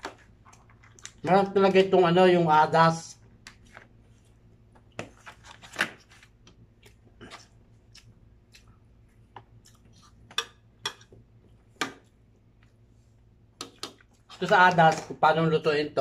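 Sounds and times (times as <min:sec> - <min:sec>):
chewing: 0:06.8 - 0:10.2.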